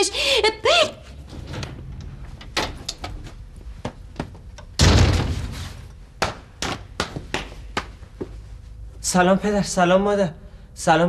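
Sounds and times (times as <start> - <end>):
wooden door slamming: 4.8 - 5.8.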